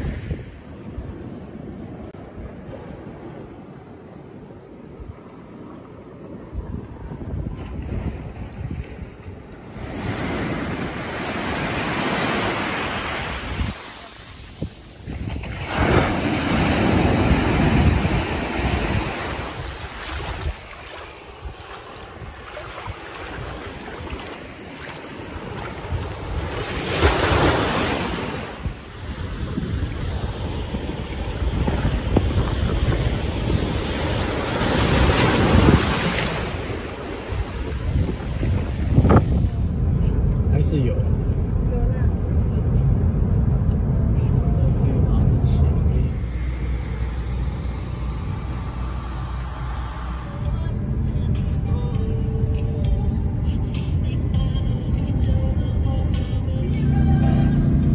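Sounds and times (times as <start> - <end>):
waves washing on sandy beach: 0.0 - 40.9, 45.3 - 54.3
wind buffeting microphone: 0.0 - 44.1, 45.0 - 51.9.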